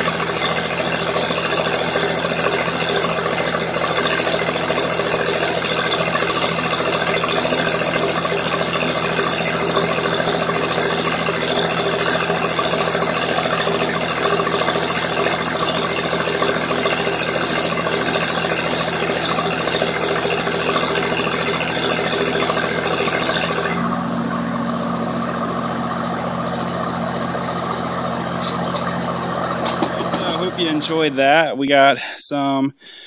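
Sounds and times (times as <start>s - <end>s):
welding arc crackling and hissing: 0.0s - 23.9s
diesel welder engine running: 0.0s - 31.5s.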